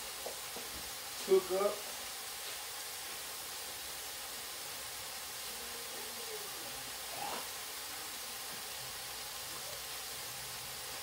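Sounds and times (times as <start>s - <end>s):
ground beef sizzling in pot: 0.0s - 11.0s.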